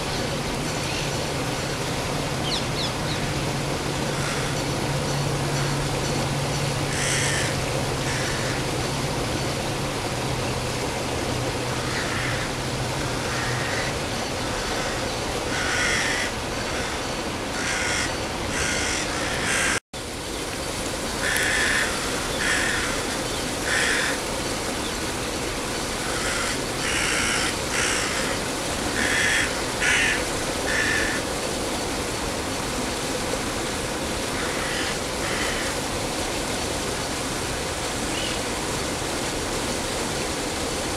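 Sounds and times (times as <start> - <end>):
rushing background noise: 0.0 - 40.9
crows cawing: 4.1 - 4.7, 6.9 - 8.7, 11.8 - 12.6, 13.2 - 14.0, 14.6 - 19.8, 21.2 - 24.3, 26.0 - 31.3, 34.4 - 35.8.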